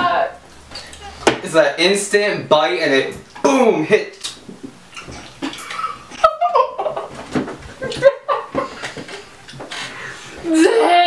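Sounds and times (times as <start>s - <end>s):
people laughing: 5.3s - 11.0s.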